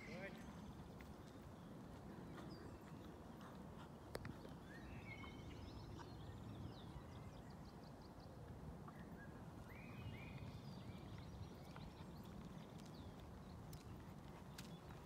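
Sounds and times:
birds chirping: 0:00.0 - 0:08.2.

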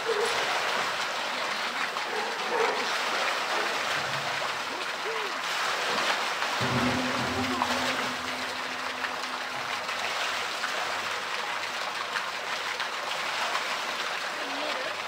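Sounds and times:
water splashing and churning: 0:00.0 - 0:15.0
low steady hum: 0:06.6 - 0:11.2.

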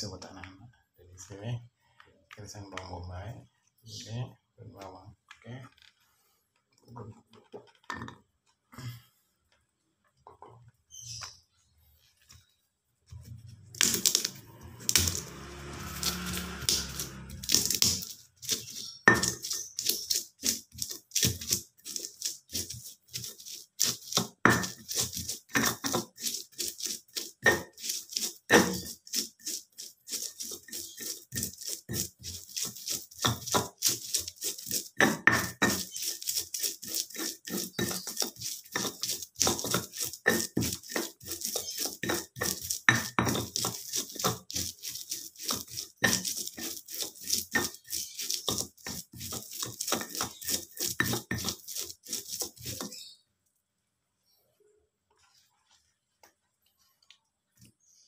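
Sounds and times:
stone pestle grinding in mortar: 0:13.2 - 0:53.1.

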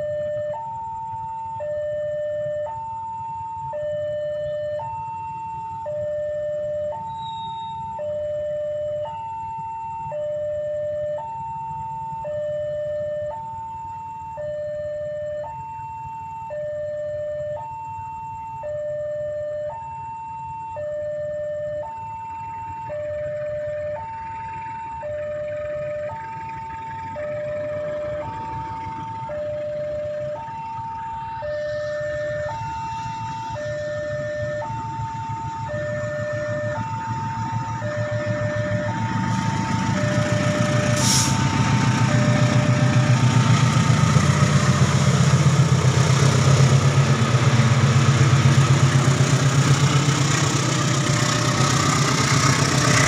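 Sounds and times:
level crossing two-tone alarm: 0:00.0 - 0:44.3
train rumble: 0:31.6 - 0:53.0.

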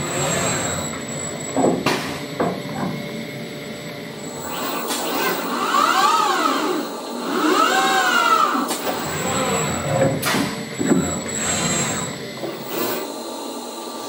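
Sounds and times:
robot arm servos whining: 0:00.0 - 0:01.6, 0:04.3 - 0:13.2.

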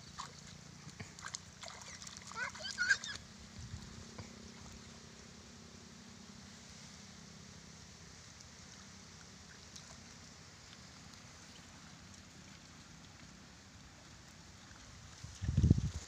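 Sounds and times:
faint background hiss: 0:00.0 - 0:16.0.

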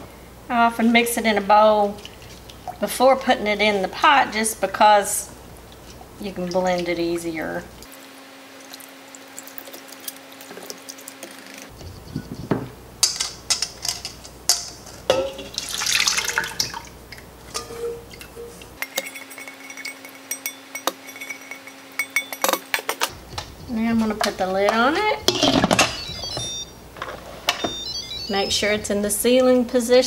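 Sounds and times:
thick soup pouring into pot: 0:15.5 - 0:17.0
whisk clinking in steel bowl: 0:17.5 - 0:22.8.

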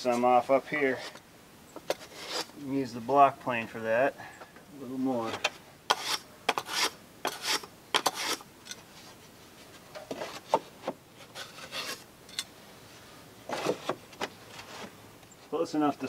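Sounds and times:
block plane scraping wood: 0:01.9 - 0:02.6, 0:05.9 - 0:08.4, 0:10.1 - 0:12.0
soft scrapes and rubs: 0:01.9 - 0:02.6, 0:05.9 - 0:12.0.

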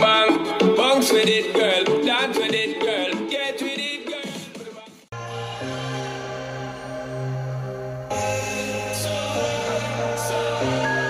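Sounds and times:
electronic music with held notes: 0:05.1 - 0:11.0.

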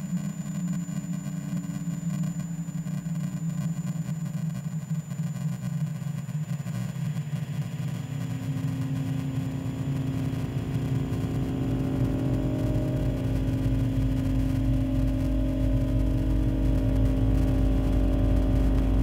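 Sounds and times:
low pulsing rumble: 0:07.4 - 0:19.0
held drone tone: 0:07.5 - 0:19.0
higher drone tone: 0:07.9 - 0:19.0.

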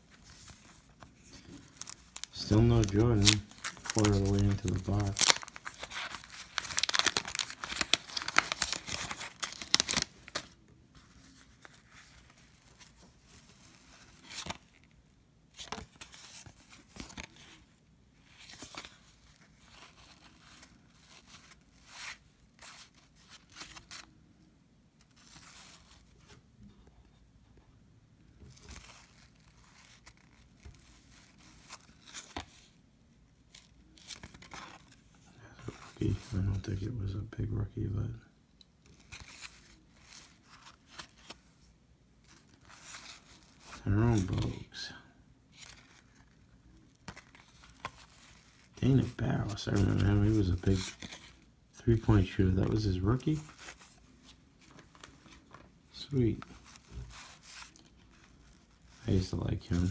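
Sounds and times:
cards rustling and clicking: 0:00.1 - 0:14.8, 0:15.6 - 0:17.6, 0:18.3 - 0:24.2, 0:28.4 - 0:32.8, 0:33.5 - 0:36.6, 0:38.8 - 0:41.6, 0:42.2 - 0:44.7, 0:45.5 - 0:59.9
wrapper tearing and crinkling: 0:01.3 - 0:10.6.

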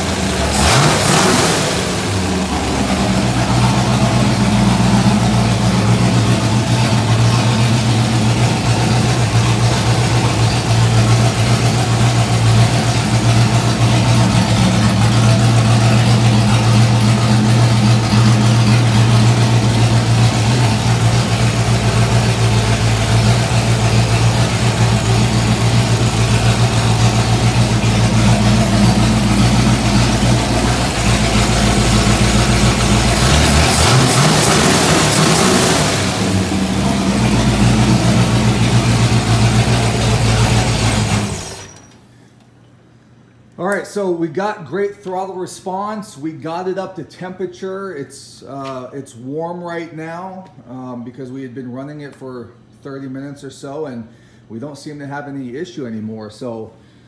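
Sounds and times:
car engine idling: 0:00.0 - 0:41.8.

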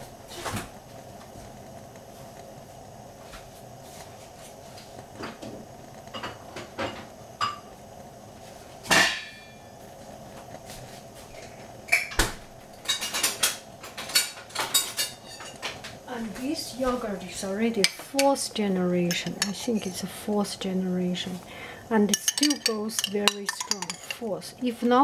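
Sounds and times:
dishes and utensils clinking: 0:19.1 - 0:20.0, 0:22.1 - 0:24.3.

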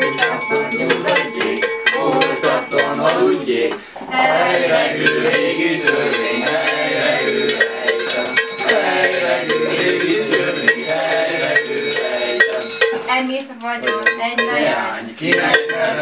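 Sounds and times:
group of men singing: 0:00.0 - 0:16.0.

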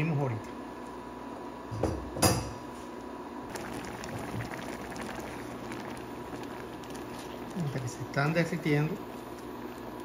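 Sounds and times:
jam simmering with bubbles popping: 0:03.5 - 0:10.0.

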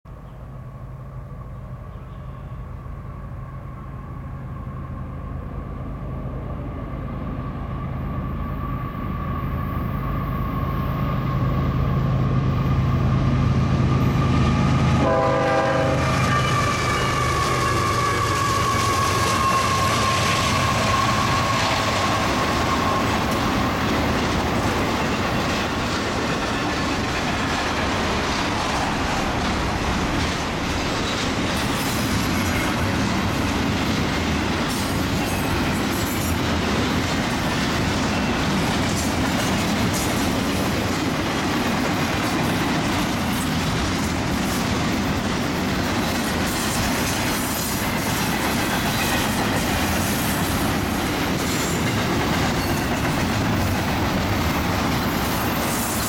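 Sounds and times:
diesel locomotive engine drone: 0:00.1 - 0:56.0
train horn: 0:01.5 - 0:05.2, 0:13.8 - 0:23.5
freight cars rumbling and clattering: 0:17.8 - 0:56.0.

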